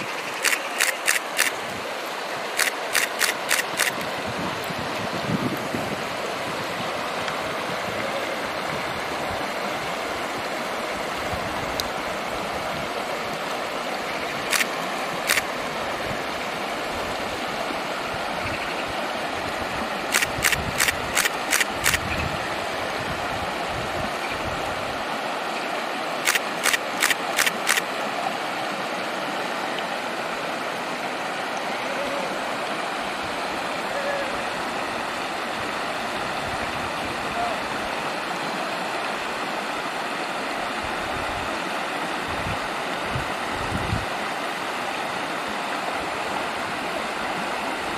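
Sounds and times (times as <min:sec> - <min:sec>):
camera shutter clicks: 0:00.4 - 0:01.6, 0:02.6 - 0:04.0, 0:14.5 - 0:14.7, 0:15.3 - 0:15.5, 0:20.1 - 0:22.0, 0:26.3 - 0:27.9.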